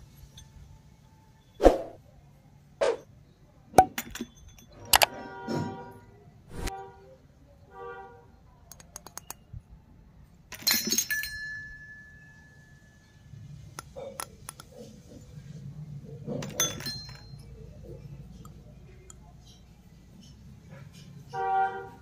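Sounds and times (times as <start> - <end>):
metal toy utensils clinking: 3.8 - 5.3, 10.5 - 12.2, 16.3 - 19.7.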